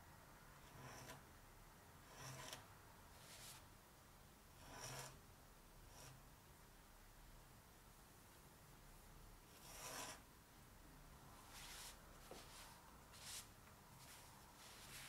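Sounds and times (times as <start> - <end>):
pen nib scratching on paper: 0.6 - 1.2, 2.1 - 2.6, 4.6 - 5.2, 9.6 - 10.2.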